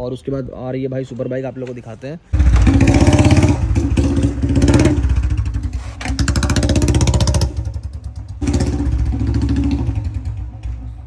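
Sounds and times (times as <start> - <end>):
motorcycle engine revving: 2.3 - 11.0.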